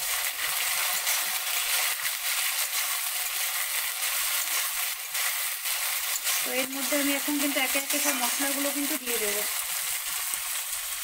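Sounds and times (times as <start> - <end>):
food sizzling in oil: 0.0 - 11.0.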